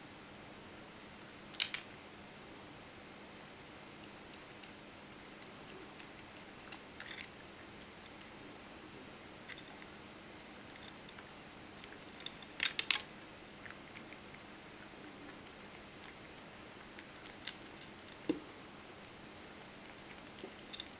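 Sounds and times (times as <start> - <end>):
cat crunching dry kibble: 3.4 - 8.5, 9.4 - 18.3, 19.0 - 20.9.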